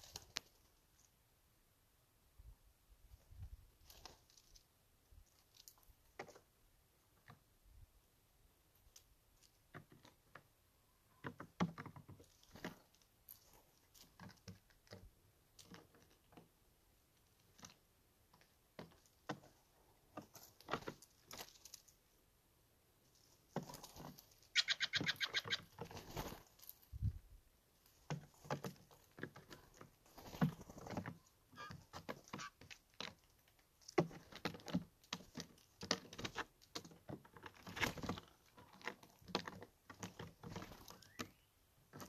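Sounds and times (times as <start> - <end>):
birds pecking peanuts: 3.8 - 7.6, 8.7 - 22.2, 23.0 - 42.0
harsh buzzy jay call: 24.5 - 25.7, 31.5 - 31.8.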